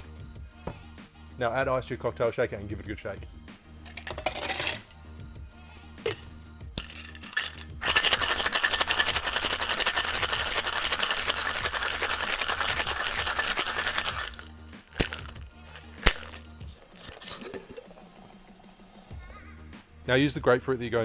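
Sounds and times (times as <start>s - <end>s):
light clicks of shaker tins: 6.0s - 18.0s
ice rattling in cocktail shaker: 6.8s - 18.1s.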